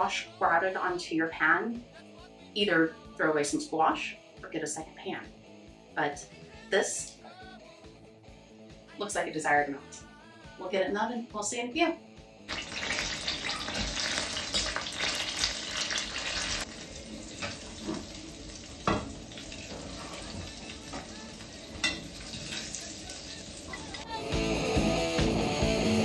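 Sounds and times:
butter sizzling in a skillet: 12.5 - 24.1.

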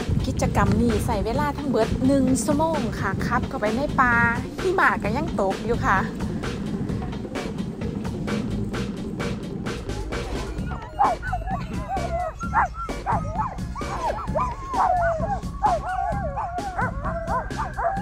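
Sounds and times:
background music with steady beat: 0.0 - 18.0
dogs yipping and howling: 10.0 - 18.0.

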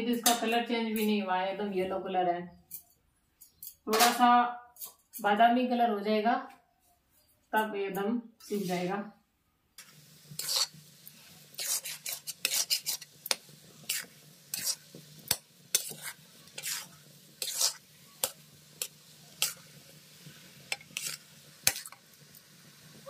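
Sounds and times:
metal spatula scraping a pan: 3.5 - 5.3, 8.4 - 8.9, 9.8 - 22.1.

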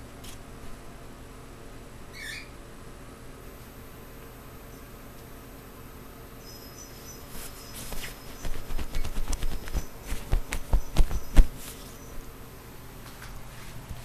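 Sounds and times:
rustling of bedding: 7.2 - 12.4.

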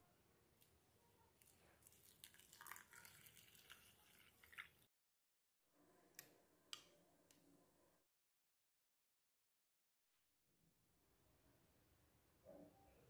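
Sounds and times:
water poured into bowl: 1.8 - 4.9.

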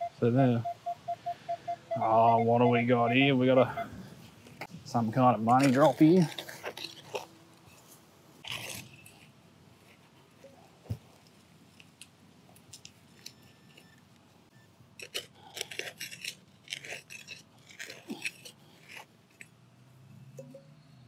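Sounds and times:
digging tool scraping dry soil: 4.5 - 9.3.

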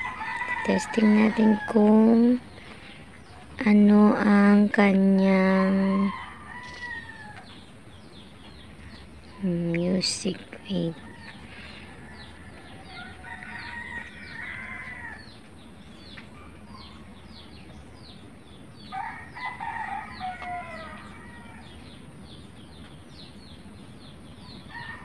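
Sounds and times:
rooster crowing: 0.0 - 2.0, 5.5 - 7.5, 11.0 - 15.4, 18.9 - 21.8, 24.7 - 25.0.

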